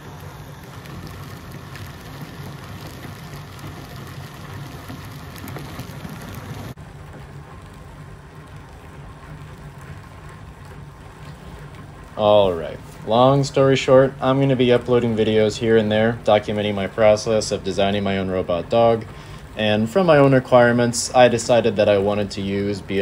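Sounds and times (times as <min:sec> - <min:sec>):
gear motors whirring: 0:00.0 - 0:06.8.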